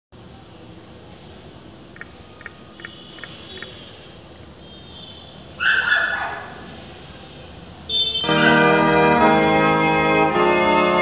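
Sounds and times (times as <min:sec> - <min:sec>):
dog yelping: 0:05.6 - 0:06.6, 0:08.4 - 0:08.7.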